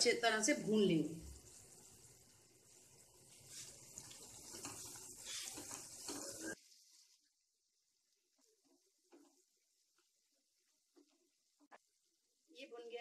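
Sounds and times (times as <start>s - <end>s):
paste sizzling in oil: 0.0s - 12.7s
spatula scraping a pan: 3.3s - 6.6s.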